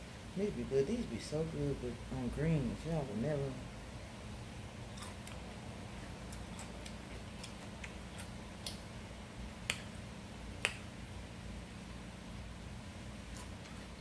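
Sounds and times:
chewing with mouth clicks: 4.9 - 5.5, 6.2 - 8.8.

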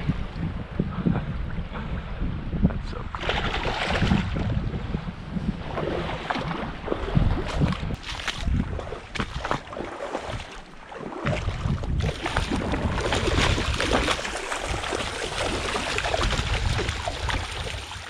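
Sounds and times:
wind buffeting microphone: 0.0 - 18.0
stream water rushing: 12.1 - 18.0.

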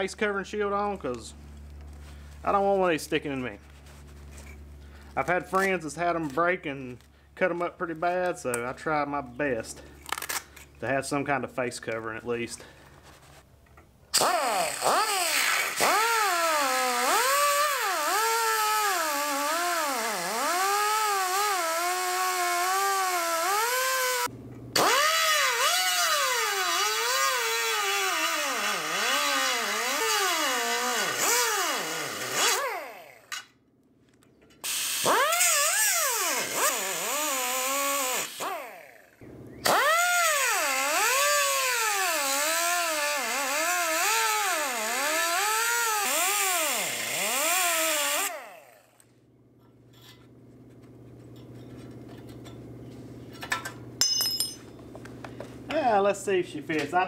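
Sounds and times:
abrasive cutoff wheel cutting steel: 14.1 - 33.6, 34.5 - 49.0.

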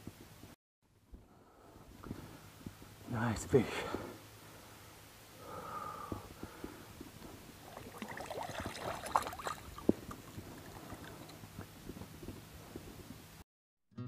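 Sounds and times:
water splashing: 7.6 - 11.5.

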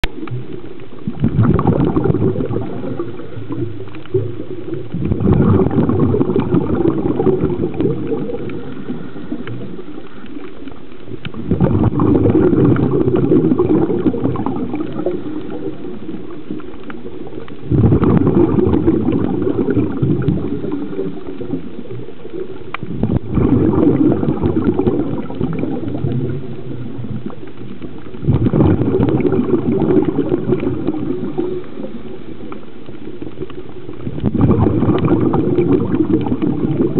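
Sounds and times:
exhaled breath bubbling underwater: 0.1 - 36.9.

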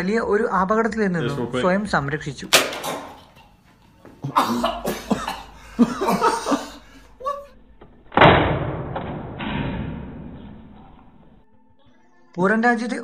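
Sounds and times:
man coughing and gagging: 2.5 - 3.5, 4.2 - 7.6.

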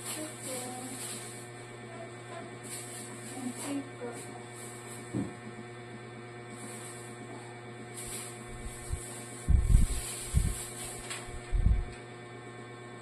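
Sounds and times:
low electrical hum: 0.0 - 13.0
loud low thumps: 9.5 - 9.9.

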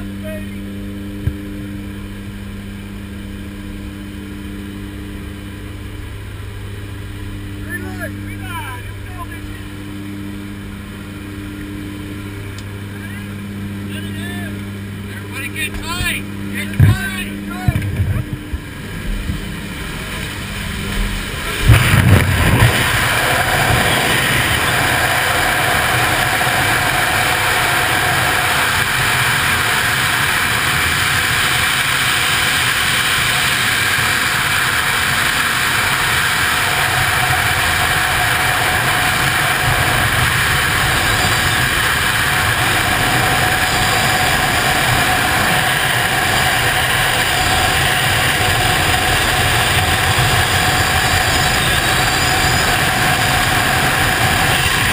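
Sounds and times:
plane cabin noise: 0.0 - 54.9
freefall wind rush: 4.0 - 54.9
gusty wind blast: 16.8 - 54.9.

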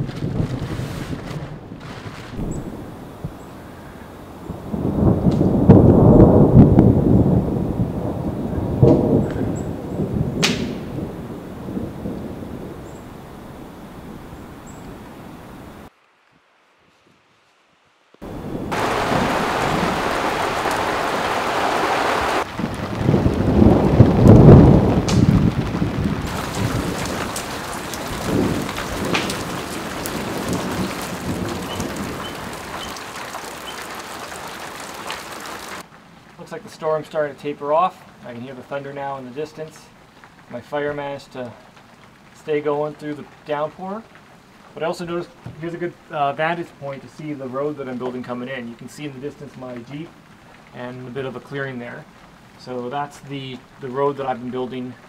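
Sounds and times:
sharp thunder crack: 0.0 - 15.1, 18.2 - 35.9
thunder rumbling: 0.0 - 15.9, 18.2 - 55.0
heavy rain pattering: 0.0 - 16.0, 18.2 - 55.0.

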